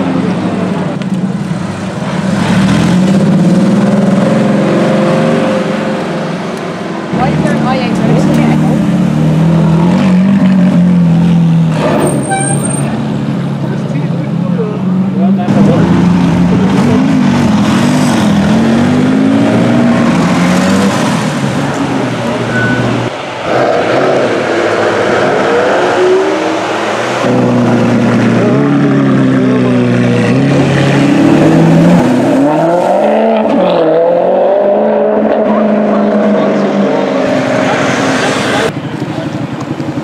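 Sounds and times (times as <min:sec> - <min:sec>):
supercar engines revving: 0:00.0 - 0:40.0.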